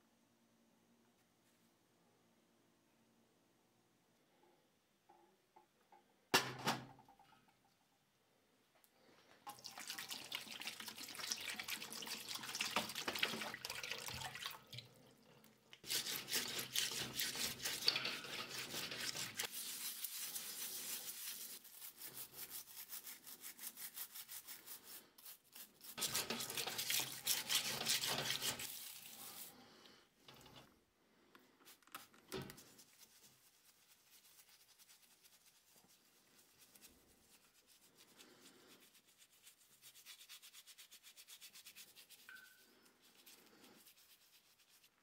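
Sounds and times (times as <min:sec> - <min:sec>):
brush scrubbing metal under water: 0:15.8 - 0:29.6.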